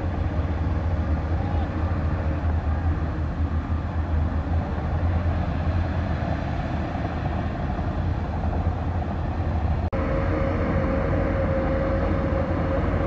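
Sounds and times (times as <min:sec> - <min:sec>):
bulldozer diesel engine running: 0:07.6 - 0:13.0.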